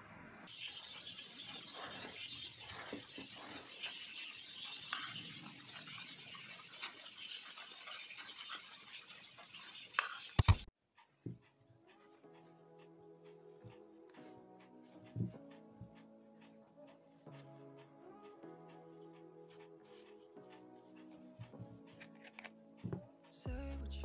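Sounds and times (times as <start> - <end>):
loud sharp clicks: 10.4 - 10.7
soft music: 10.4 - 24.0.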